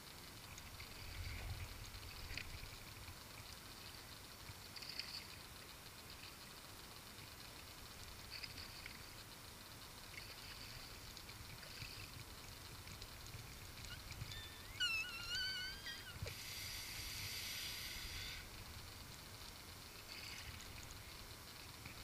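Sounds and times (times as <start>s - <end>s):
fishing reel drag whining: 10.1s - 19.2s
fish splashing: 13.4s - 18.5s.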